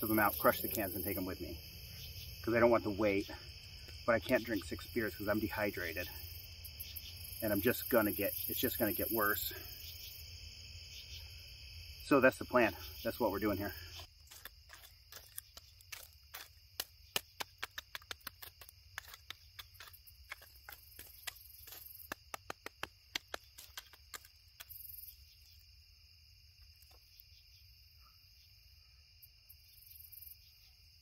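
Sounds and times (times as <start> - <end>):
insects trilling: 0.0 - 31.0
stick crunching campfire coals: 13.5 - 25.1.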